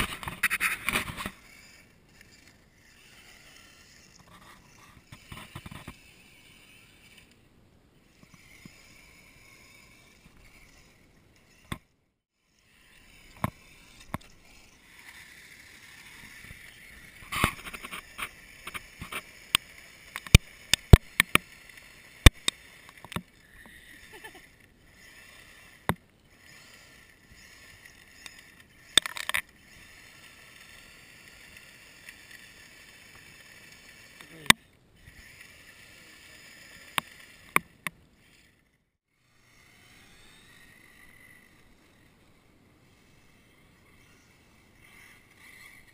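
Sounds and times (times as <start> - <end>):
toy truck motor whining: 0.0 - 7.4, 8.0 - 45.9
sharp clicks and knocks: 17.2 - 21.6, 22.2 - 23.8, 28.2 - 29.5.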